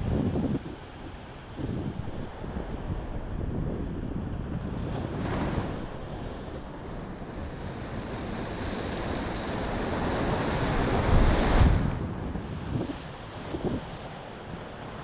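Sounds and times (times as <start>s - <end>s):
wind buffeting microphone: 0.0s - 14.6s
surf washing over rocks: 1.9s - 15.0s.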